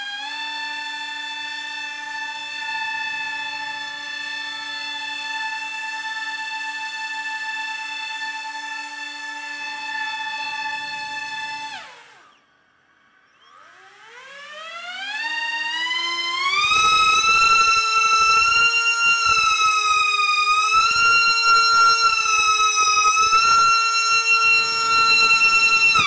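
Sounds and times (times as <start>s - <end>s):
propellers whining: 15.6s - 26.0s.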